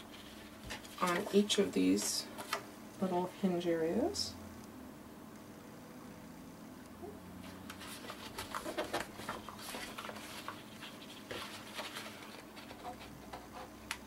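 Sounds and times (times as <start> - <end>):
paper rustling and crinkling: 0.0 - 2.6, 7.4 - 14.0.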